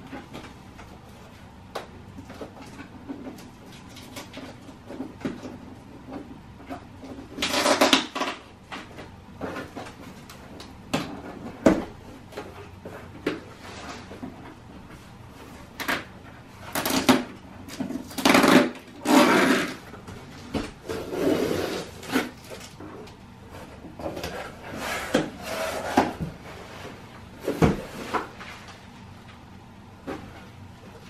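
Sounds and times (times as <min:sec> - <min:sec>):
cardboard box scraping and tearing: 0:18.0 - 0:19.8, 0:20.8 - 0:22.4.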